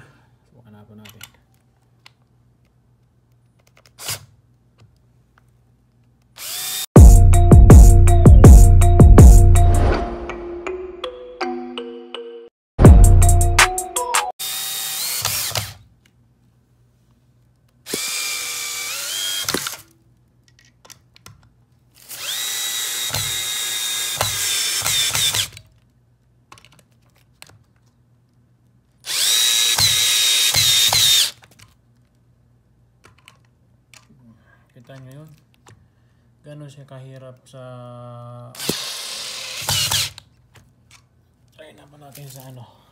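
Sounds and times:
impact drill motor whine: 6.4s - 6.9s, 14.4s - 15.7s, 17.9s - 19.8s, 22.1s - 25.5s, 29.1s - 31.3s, 38.6s - 40.1s.

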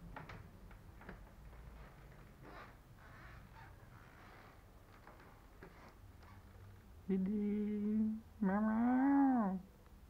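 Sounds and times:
faint soft rustles: 0.2s - 7.0s.

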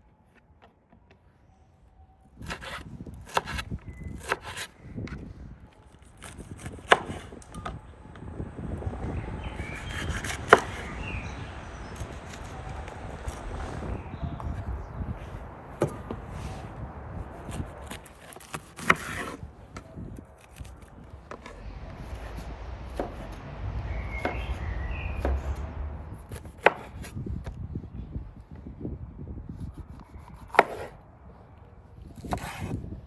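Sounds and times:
knife slicing pepper: 32.2s - 32.8s.

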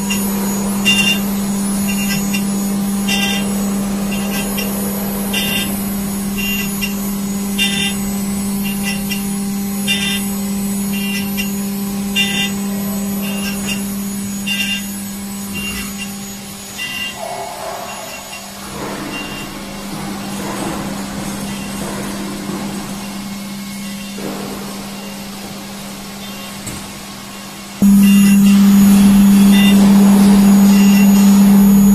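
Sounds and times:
high-pitched metal cutting noise: 0.0s - 20.7s, 27.8s - 31.9s
milling spindle humming: 0.0s - 31.9s.

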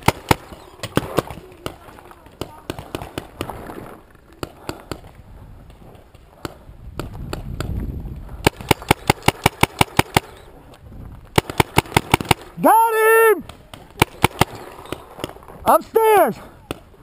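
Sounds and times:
paintball marker firing: 8.4s - 10.4s, 13.4s - 15.4s.

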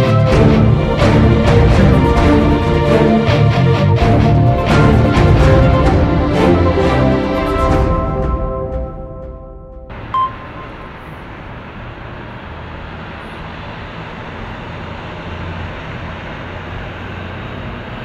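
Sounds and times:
distant road traffic rumble: 9.9s - 18.0s
loud high beep: 10.1s - 10.9s.

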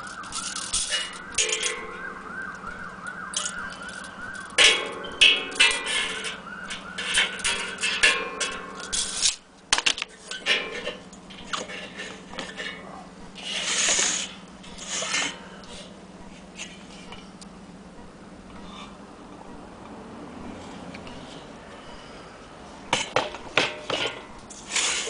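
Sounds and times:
metal heater clicks and scrapes: 0.0s - 2.7s, 3.3s - 15.9s
hissy rubbing: 13.4s - 15.9s.

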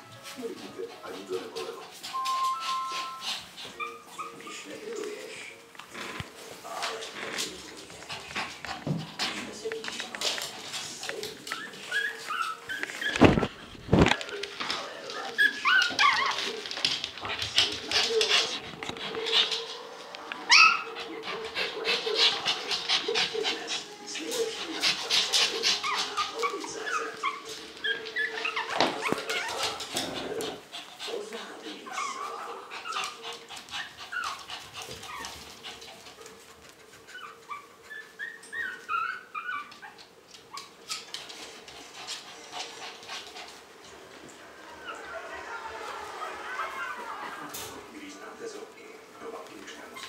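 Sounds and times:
puppies whimpering and yipping: 0.1s - 4.9s, 10.4s - 13.6s, 14.5s - 43.8s, 44.7s - 47.8s.

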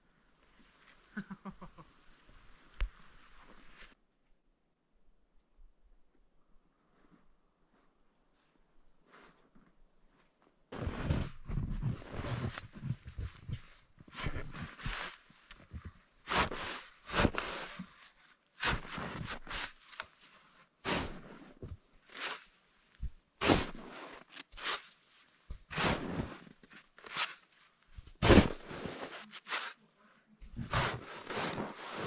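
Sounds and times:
shovel scraping and crunching snow: 2.7s - 4.0s, 10.7s - 32.0s.

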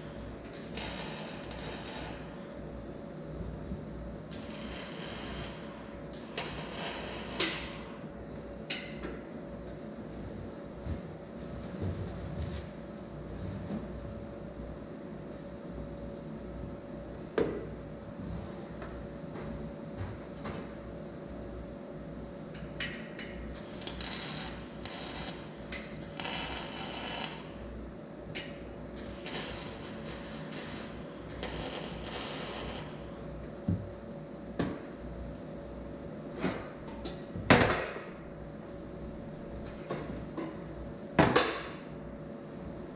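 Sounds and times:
arc welder crackling: 0.0s - 2.6s, 4.3s - 8.0s, 23.5s - 27.8s, 29.0s - 33.2s
steady hum: 0.0s - 42.9s.

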